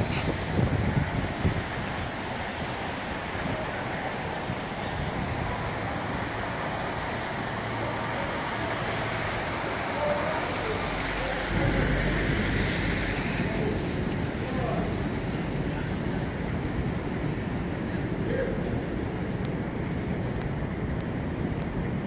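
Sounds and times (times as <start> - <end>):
cars and trucks driving past: 0.0 - 21.4
tyres hissing on wet pavement: 0.0 - 22.0
heavy vehicle rumbling by: 3.4 - 19.0.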